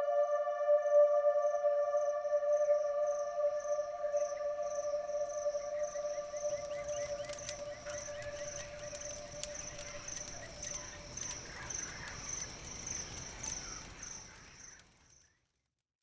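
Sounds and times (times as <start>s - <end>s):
crickets chirping: 0.8s - 15.4s
campfire crackling: 3.5s - 15.7s.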